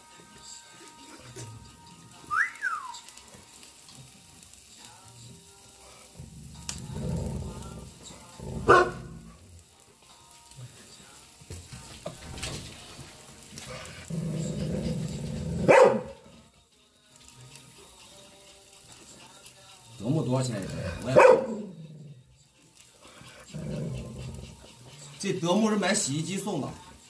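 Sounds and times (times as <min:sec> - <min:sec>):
meat sizzling on grill: 0:00.0 - 0:27.0
dog growling: 0:05.8 - 0:09.6, 0:13.5 - 0:16.5, 0:20.4 - 0:22.4, 0:23.0 - 0:25.5
dog barking: 0:08.6 - 0:09.1, 0:15.6 - 0:16.3, 0:21.0 - 0:21.8.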